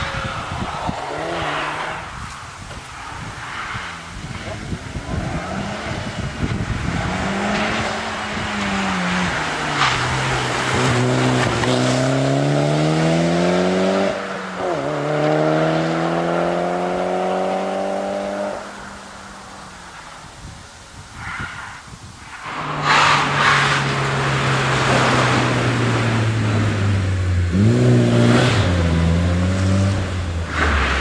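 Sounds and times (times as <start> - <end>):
rally car engine accelerating: 4.3 - 18.6, 22.6 - 31.0.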